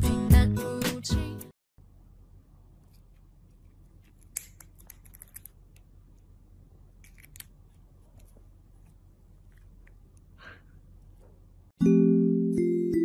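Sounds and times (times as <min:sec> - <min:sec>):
low room hum: 0:01.8 - 0:11.8.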